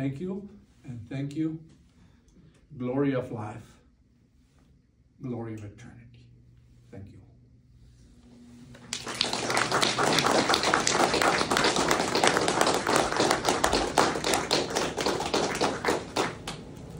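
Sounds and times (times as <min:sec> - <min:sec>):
audience applauding: 0:08.8 - 0:16.9.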